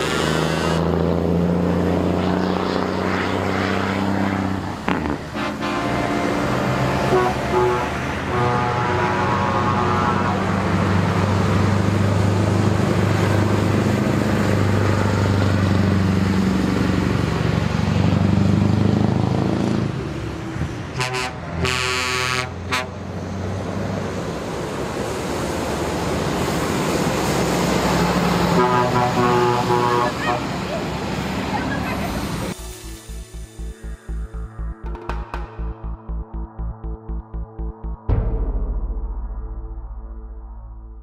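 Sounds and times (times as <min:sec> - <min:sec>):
heavy truck engines rumbling: 0:00.0 - 0:37.8
truck approaching: 0:00.0 - 0:41.0
truck horn: 0:04.8 - 0:11.2, 0:20.9 - 0:23.2, 0:28.4 - 0:31.0.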